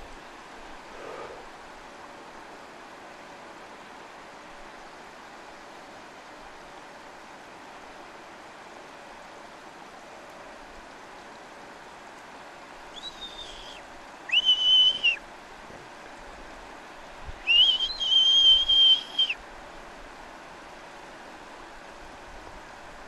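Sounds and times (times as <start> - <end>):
marmot alarm whistles: 12.9 - 15.2, 17.5 - 19.4.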